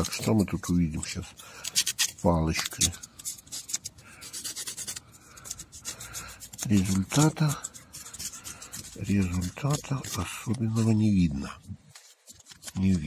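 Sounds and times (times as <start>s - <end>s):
wooden stick scraping metal: 0.0s - 13.0s.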